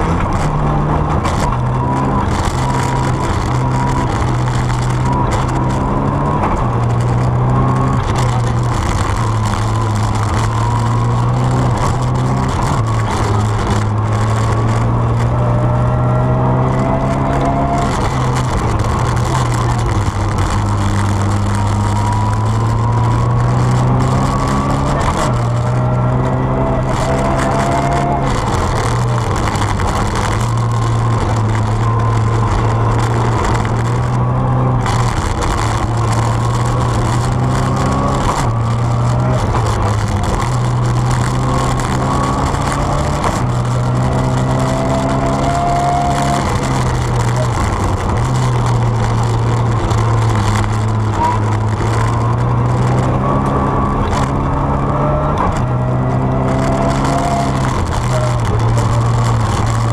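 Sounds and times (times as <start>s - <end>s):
rally car engine revving: 0.0s - 59.9s
tyre and road noise: 0.0s - 59.9s.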